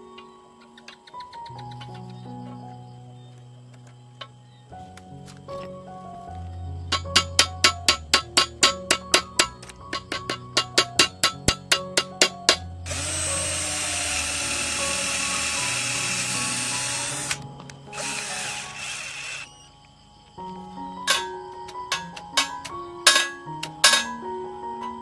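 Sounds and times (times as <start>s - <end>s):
background music with ticking beat: 0.1s - 2.6s, 6.9s - 19.4s, 20.3s - 25.0s
electric drill boring plastic: 12.9s - 19.6s.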